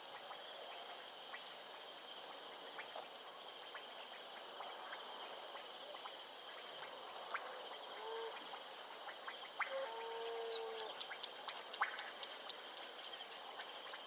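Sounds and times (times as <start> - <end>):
night insects trilling: 0.0 - 14.0
low animal call: 9.7 - 11.0.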